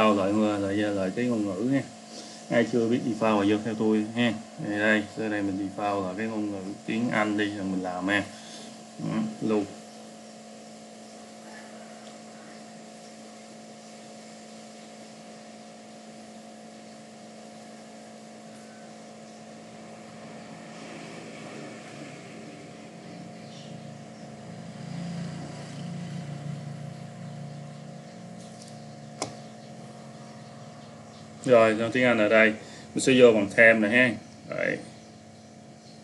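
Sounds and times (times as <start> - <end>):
electrical hum: 0.0 - 36.0
sharp click: 28.5 - 29.5.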